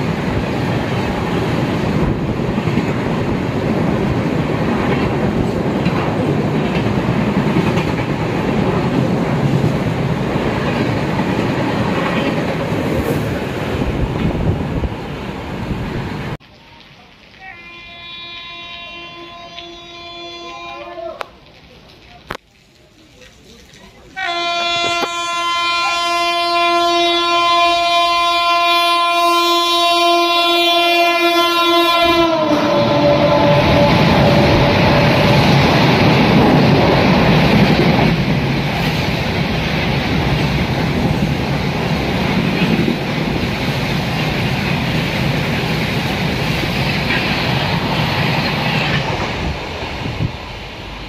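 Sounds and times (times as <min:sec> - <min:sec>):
train passing at speed: 0:00.0 - 0:16.4, 0:24.2 - 0:51.0
locomotive horn: 0:17.4 - 0:21.2, 0:24.2 - 0:35.7.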